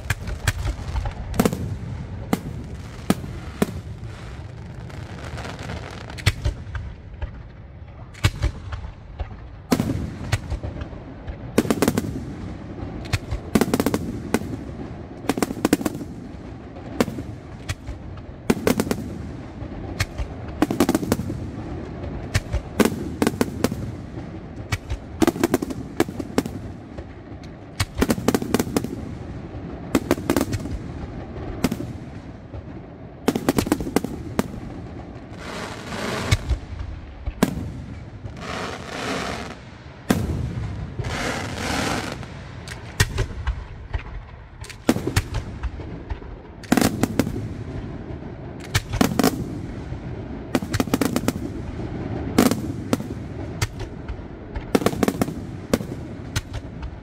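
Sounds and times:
firework hiss: 33.4 - 36.8, 37.4 - 43.4.

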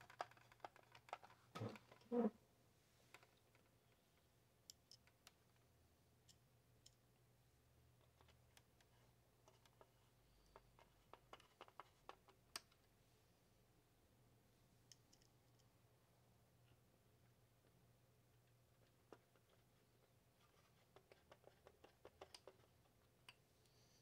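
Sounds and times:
plastic and metal parts clicking: 0.0 - 2.1, 10.5 - 12.9.

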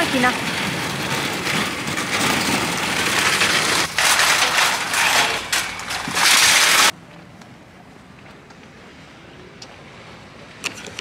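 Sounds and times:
shopping trolley rattling on paving: 0.0 - 6.9.

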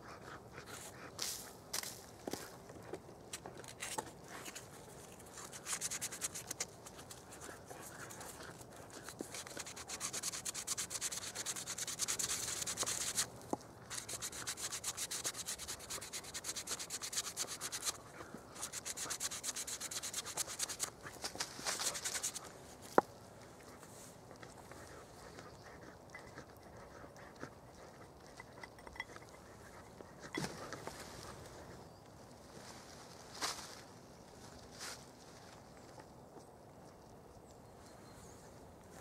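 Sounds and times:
abrasive cloth sanding wood: 9.4 - 13.3, 13.9 - 18.0, 18.6 - 20.9.

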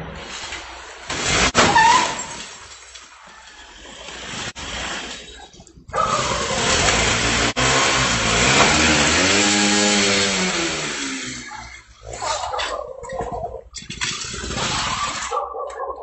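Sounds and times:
vehicle engine revving hard: 6.0 - 11.9.

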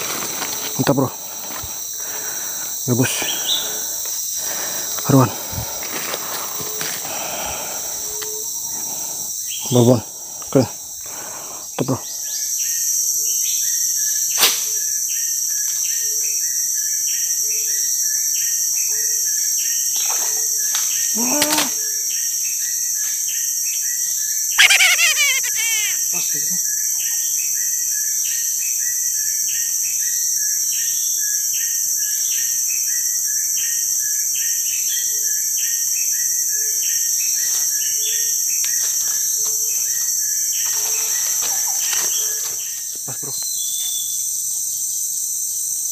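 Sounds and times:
insects droning: 0.0 - 45.9
short call falling in pitch: 24.6 - 26.1.

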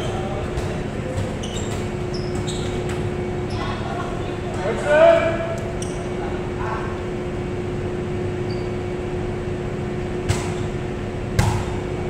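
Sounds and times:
ventilation fans humming: 0.0 - 12.0
volleyball smacks: 11.4 - 11.8.

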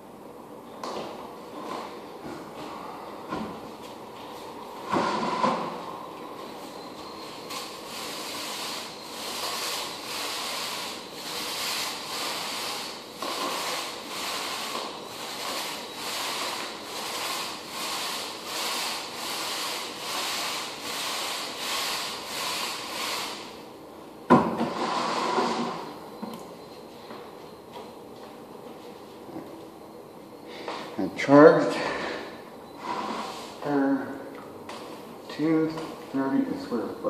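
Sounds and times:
rhythmic rubbing strokes: 7.2 - 23.5.

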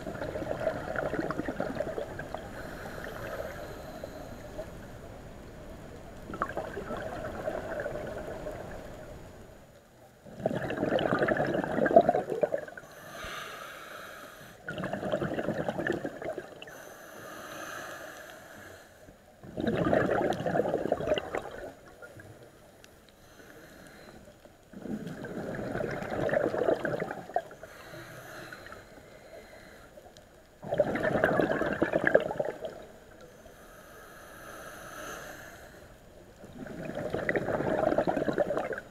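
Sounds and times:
exhaled bubbles bursting: 0.0 - 2.5, 6.2 - 8.8, 10.3 - 12.8, 14.6 - 16.7, 19.4 - 22.0, 24.7 - 27.6, 30.6 - 33.0, 36.4 - 38.9
regulator inhalation hiss: 12.9 - 14.6, 16.7 - 19.1, 33.3 - 35.9.

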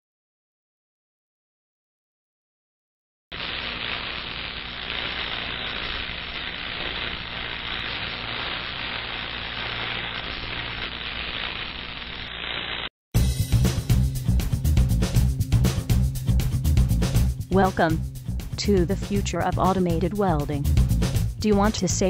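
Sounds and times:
sizzling spark hiss: 3.3 - 12.9.

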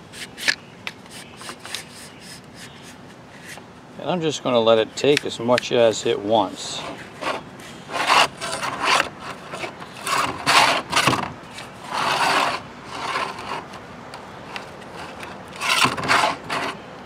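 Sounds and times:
starter rope rubbing: 0.0 - 3.6, 6.6 - 13.8, 14.5 - 16.8.

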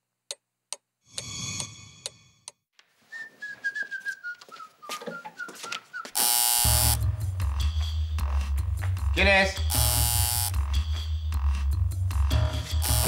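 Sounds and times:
man whistling a tune: 3.1 - 6.2
loud harsh buzz: 9.7 - 10.6.

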